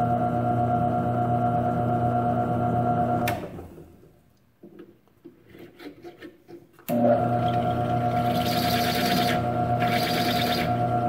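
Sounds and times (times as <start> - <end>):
drill press motor humming: 6.9 - 11.0.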